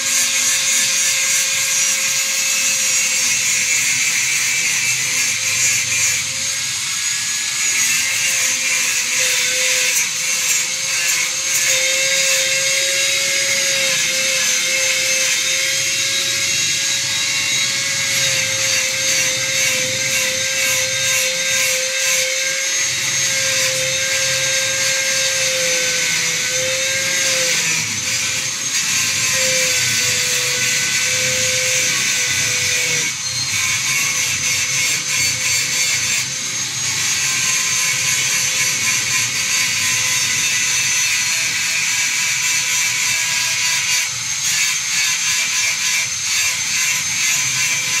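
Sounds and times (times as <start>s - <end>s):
power tool motor whine: 0.0s - 48.0s.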